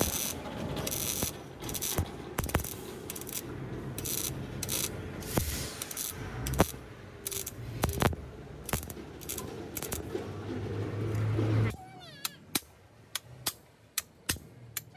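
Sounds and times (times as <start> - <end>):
arc welder crackling hiss: 0.0 - 10.1
sharp clicks: 12.2 - 14.9.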